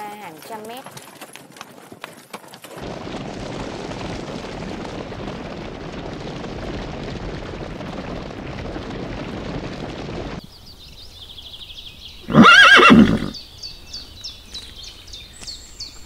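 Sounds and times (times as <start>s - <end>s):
herd of horses galloping: 0.0s - 10.5s, 12.2s - 13.4s
hooves clopping on rocky ground: 0.0s - 10.5s.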